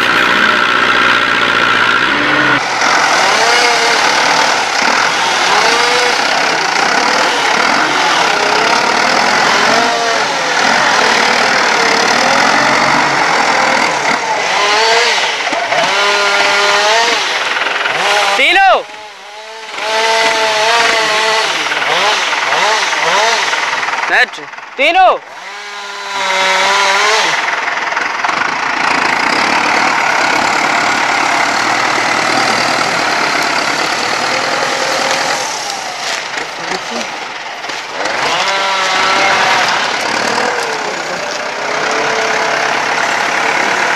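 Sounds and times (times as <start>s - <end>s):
heavy log dragging: 0.0s - 18.4s, 25.4s - 43.9s
tractor diesel engine labouring: 0.0s - 43.9s
log skidding across ground: 26.5s - 43.9s.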